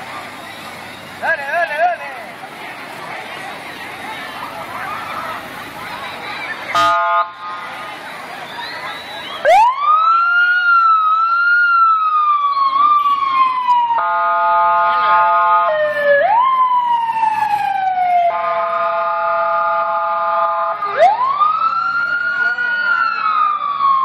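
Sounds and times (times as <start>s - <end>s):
emergency siren wailing: 3.8s - 24.0s
long horn blast: 6.7s - 7.6s, 14.0s - 15.7s, 18.3s - 20.8s.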